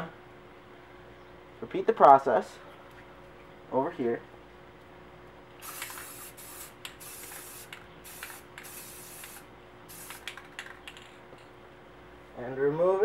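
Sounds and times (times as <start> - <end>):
aerosol spray can hissing: 5.6 - 10.4.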